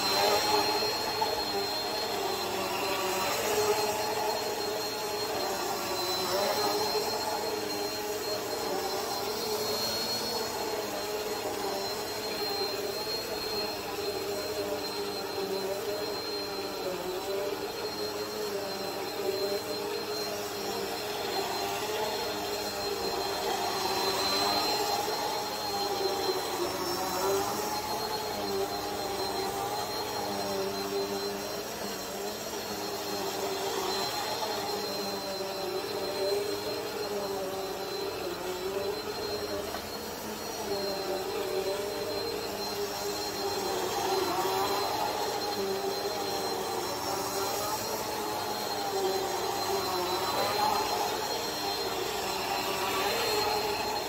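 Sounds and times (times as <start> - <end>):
thin high whine: 0.0 - 54.0
vacuum cleaner running: 0.0 - 54.0.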